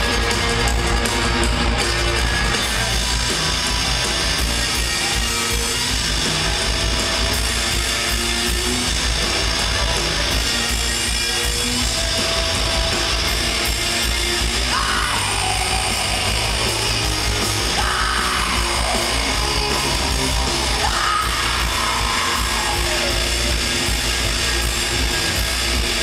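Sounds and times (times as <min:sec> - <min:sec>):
live rock band playing: 0:00.0 - 0:26.0
yelled vocals: 0:13.0 - 0:26.0.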